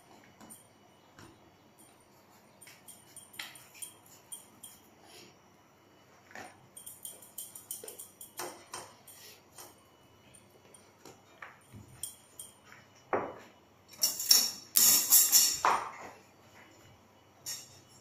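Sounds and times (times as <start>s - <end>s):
light clicks and tinkling: 1.7s - 5.2s, 6.3s - 13.1s.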